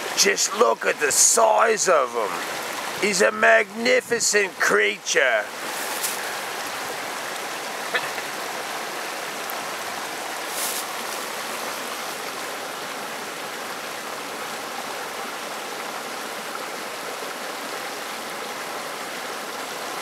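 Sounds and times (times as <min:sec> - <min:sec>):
creek water running: 0:00.0 - 0:20.0
water swish: 0:05.5 - 0:08.1, 0:08.7 - 0:12.3.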